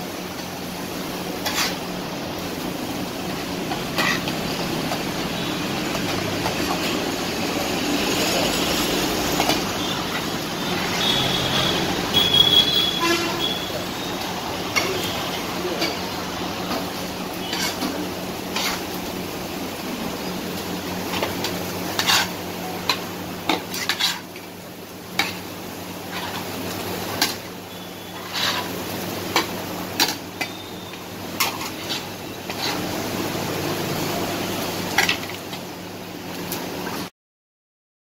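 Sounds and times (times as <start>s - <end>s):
food sizzling: 0.0s - 37.1s
metal spatulas clanking on griddle: 1.4s - 1.8s, 3.9s - 4.4s, 14.7s - 15.1s, 17.4s - 18.0s, 22.0s - 22.3s, 25.2s - 25.4s, 29.3s - 30.6s, 31.4s - 32.8s, 35.0s - 35.4s.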